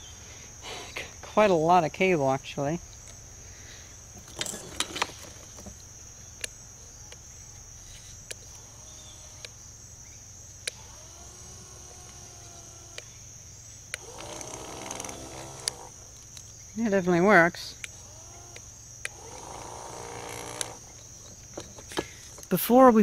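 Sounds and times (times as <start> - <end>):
crickets chirring: 0.0 - 23.0
electric motor propeller hum: 4.2 - 22.5
sharp clicks: 10.6 - 11.3, 11.9 - 13.2, 13.8 - 16.5, 17.8 - 22.1.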